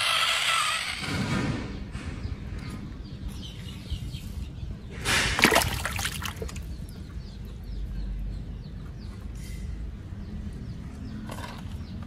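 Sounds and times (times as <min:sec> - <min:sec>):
water splashing in a puddle: 0:05.1 - 0:06.7.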